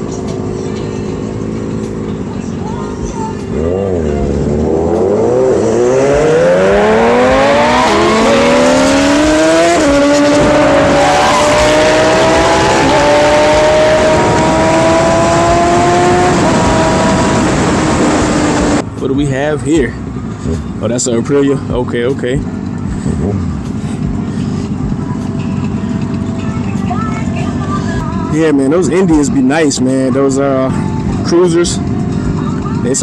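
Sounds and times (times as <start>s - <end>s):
motorcycle engine revving: 0.0s - 18.8s.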